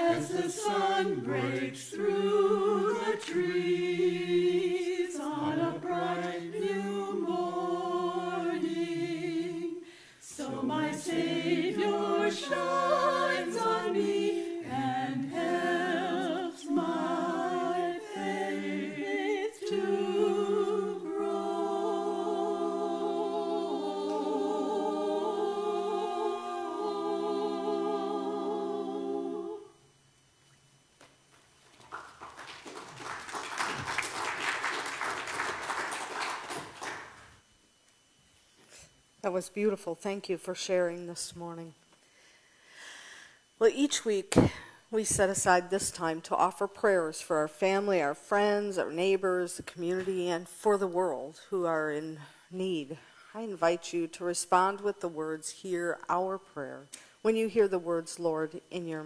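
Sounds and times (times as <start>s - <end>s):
mixed choir singing in harmony: 0.0s - 29.9s.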